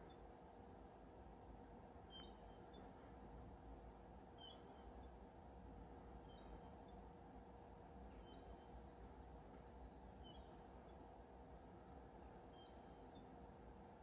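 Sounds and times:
small bird singing: 4.4 - 5.1, 6.3 - 7.0, 8.2 - 8.9, 9.8 - 11.0, 12.6 - 13.4.

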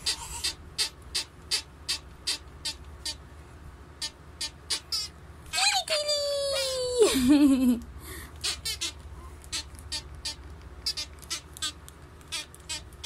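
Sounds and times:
high-pitched playful voice: 5.5 - 7.8.

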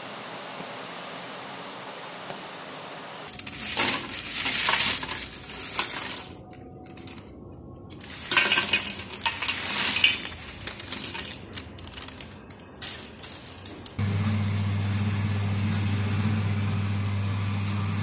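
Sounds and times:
dried fish rustling on enamel plate: 3.3 - 14.0
steady low hum: 14.0 - 18.0.

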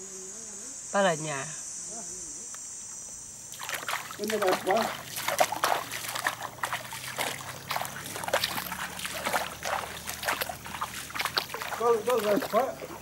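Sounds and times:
footsteps wading through water: 3.5 - 13.0.

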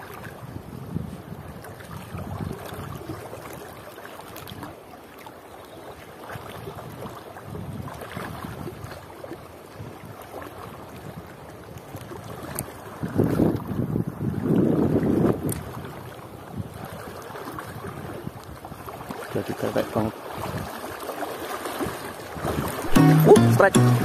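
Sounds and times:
wind buffeting microphone: 0.0 - 3.4, 6.6 - 9.0, 9.7 - 20.8, 21.8 - 22.9
river water flowing: 0.0 - 24.0.

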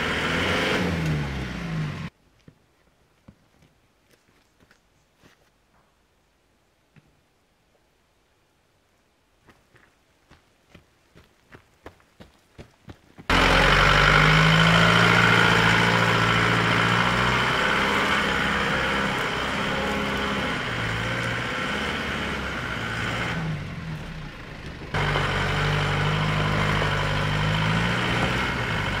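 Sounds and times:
truck engine running under load: 13.3 - 29.0.

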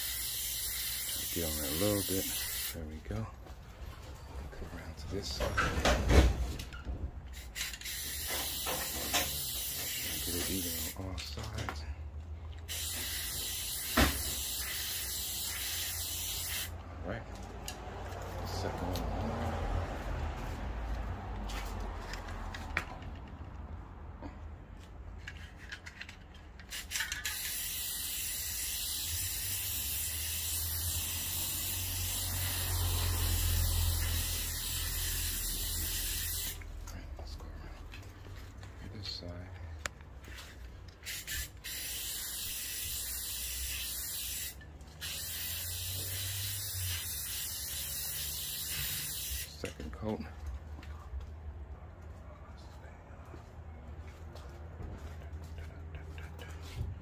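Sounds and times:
aerosol spray can hissing: 0.0 - 2.8, 7.4 - 11.0, 12.7 - 16.7, 26.7 - 36.6, 41.0 - 49.5.

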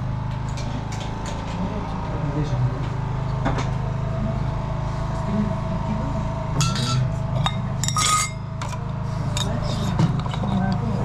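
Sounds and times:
ceramic teapots and lids clinking: 6.6 - 10.9.

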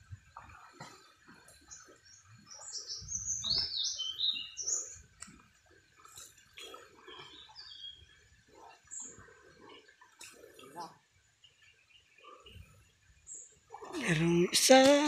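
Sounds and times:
songbird singing: 1.6 - 5.2, 6.6 - 8.2.

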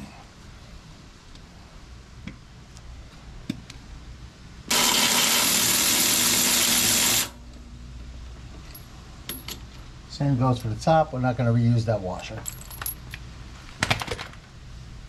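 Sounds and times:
power tool running: 4.7 - 7.4.

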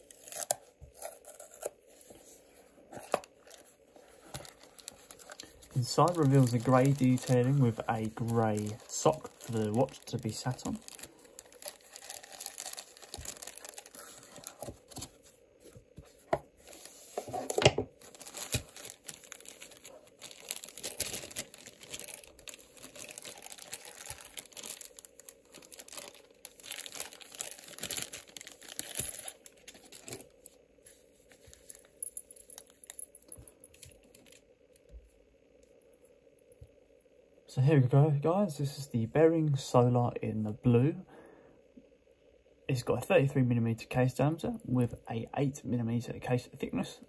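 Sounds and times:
plastic bag crinkling and tearing: 0.0 - 1.7, 3.2 - 15.1, 18.0 - 30.3
faint steady tone: 18.1 - 47.0.

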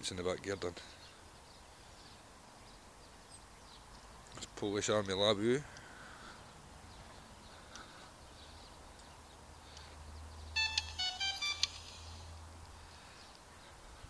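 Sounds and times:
electronic beeping melody: 10.6 - 12.4.

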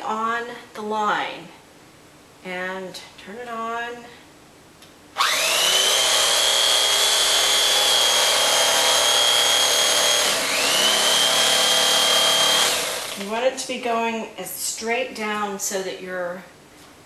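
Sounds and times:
electric knife cutting foam: 5.2 - 13.3.

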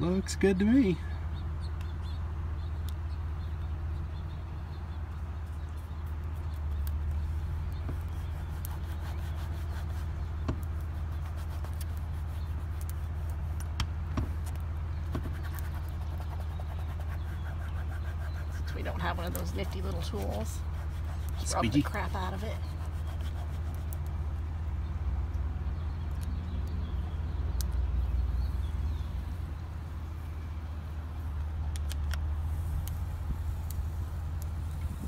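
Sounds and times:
low machine hum: 0.0 - 35.0.

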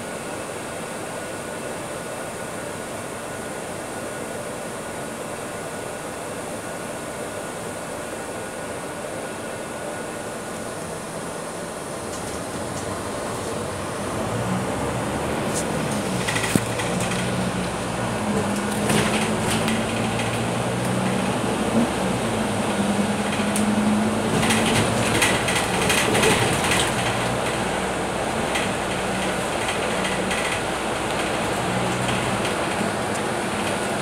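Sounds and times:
bus engine hum: 0.0 - 34.0
tyre and road noise: 12.1 - 34.0.

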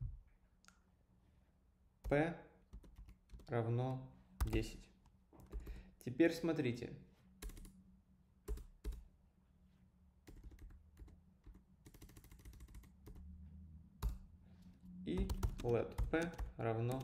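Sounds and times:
computer keyboard keys clicking: 2.8 - 3.5, 4.4 - 4.7, 5.4 - 5.8, 7.4 - 7.7, 8.5 - 9.0, 10.3 - 13.3, 15.2 - 17.0.

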